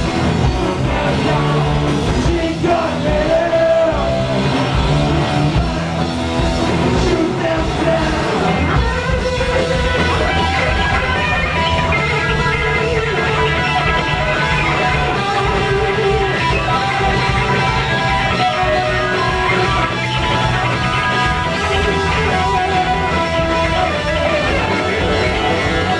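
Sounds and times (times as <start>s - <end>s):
electric guitars: 0.0s - 25.9s
heavy metal band playing: 0.0s - 25.9s.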